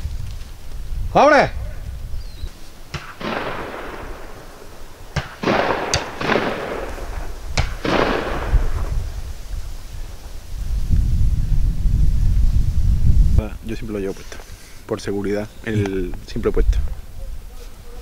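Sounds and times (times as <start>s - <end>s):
shotgun shots with echo: 2.9s - 9.0s.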